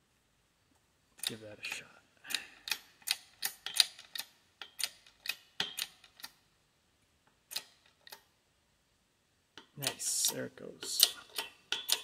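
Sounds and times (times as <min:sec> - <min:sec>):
sharp metallic clicks: 0:01.2 - 0:06.4, 0:07.3 - 0:08.3, 0:09.6 - 0:12.0.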